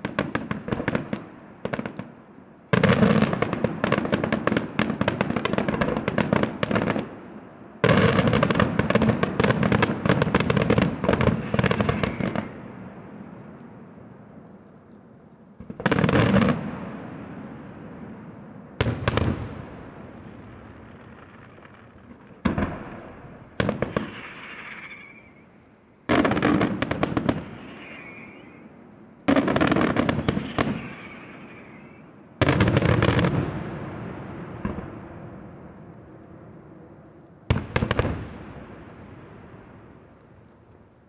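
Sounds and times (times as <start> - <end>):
firework shells bursting: 0.0 - 14.6, 15.6 - 41.0
firework crackling and hiss: 0.0 - 41.0
rolling echo: 0.0 - 41.0.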